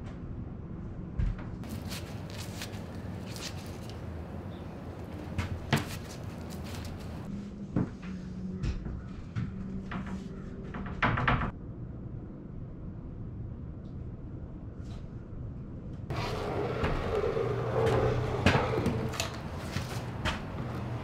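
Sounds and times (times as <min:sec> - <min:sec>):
wood and tools clattering: 0:01.6 - 0:07.3, 0:16.1 - 0:21.0
low hum: 0:11.5 - 0:21.0.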